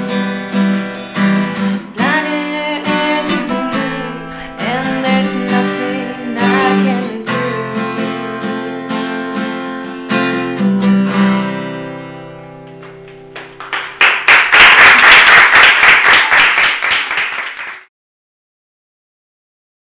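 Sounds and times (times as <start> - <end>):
acoustic guitar picking and strumming: 0.0 - 13.6.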